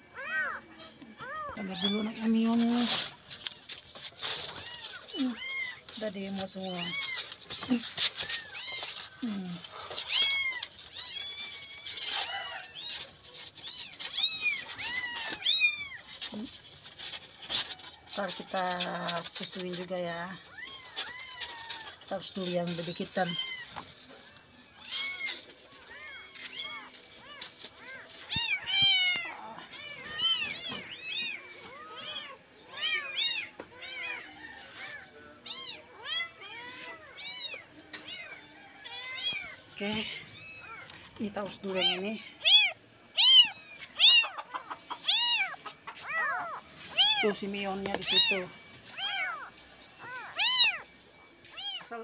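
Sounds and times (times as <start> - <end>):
kittens mewing: 41.8 - 47.2.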